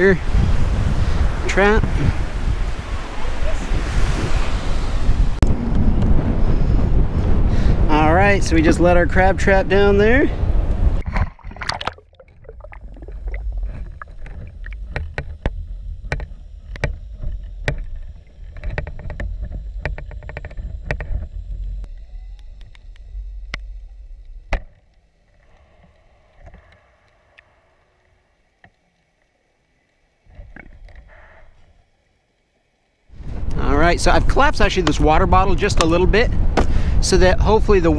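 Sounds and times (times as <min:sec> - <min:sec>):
low underwater rumble: 0:10.5 - 0:28.6
trap frame clicking and knocking: 0:13.7 - 0:21.8.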